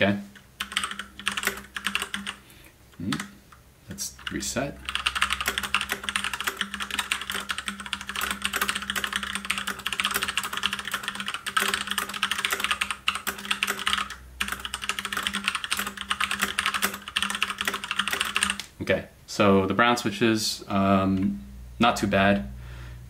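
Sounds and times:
fast mechanical keyboard typing: 0.4s - 2.4s, 4.1s - 18.7s.

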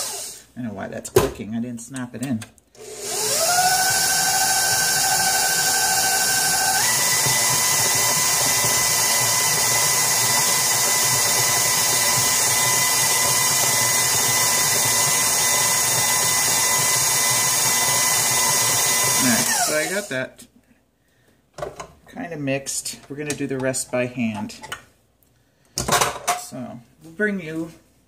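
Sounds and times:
stand mixer motor whining: 2.8s - 20.1s.

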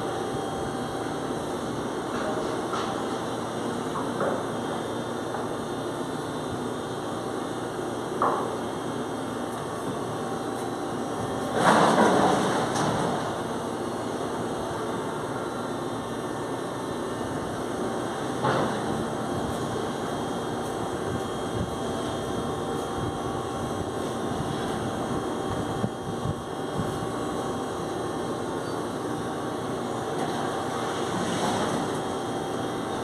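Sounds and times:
machinery drone: 6.9s - 33.0s.

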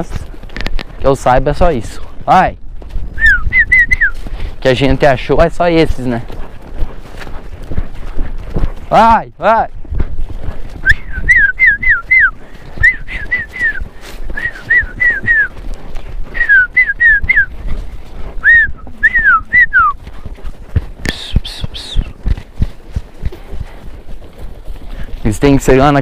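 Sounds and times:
person whistling: 3.2s - 4.2s, 10.8s - 15.5s, 16.3s - 17.5s, 18.4s - 20.0s, 21.1s - 22.1s
horse hoof thuds: 5.8s - 8.9s, 9.7s - 25.9s.

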